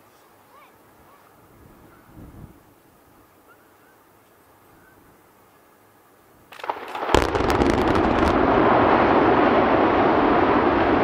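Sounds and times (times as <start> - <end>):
building collapsing rumble: 6.6 - 11.0.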